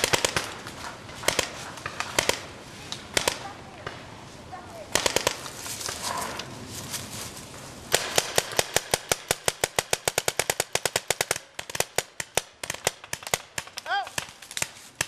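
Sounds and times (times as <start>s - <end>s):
paintball markers firing: 0.0s - 3.5s, 4.9s - 5.6s, 7.9s - 15.0s.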